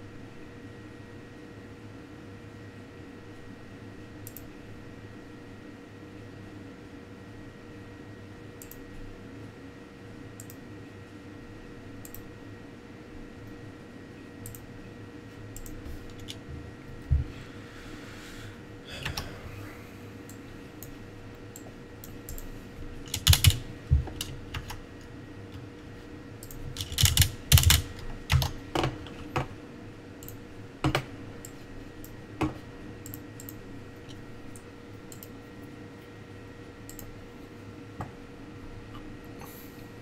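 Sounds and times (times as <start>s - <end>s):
faint steady hum: 0.0s - 40.0s
computer keyboard typing: 23.1s - 24.8s, 26.4s - 29.0s.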